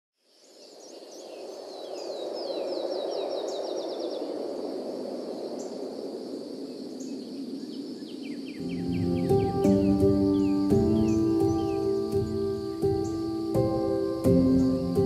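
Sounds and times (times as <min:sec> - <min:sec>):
high insect buzz: 0:05.3 - 0:15.0
birds calling: 0:07.7 - 0:15.0
low rushing background: 0:08.6 - 0:15.0.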